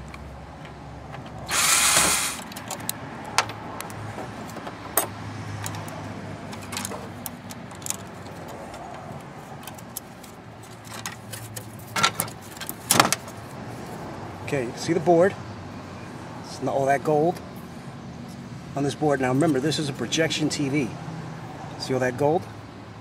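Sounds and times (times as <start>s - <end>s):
loud harsh noise: 1.5s - 2.5s
plastic and metal parts clanking: 6.5s - 8.4s.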